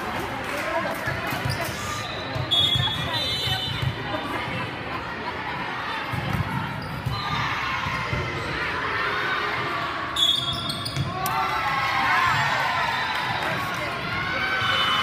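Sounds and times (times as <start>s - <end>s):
murmur of spectators: 0.0s - 15.0s
shrill whistle: 2.0s - 3.7s, 10.2s - 10.9s.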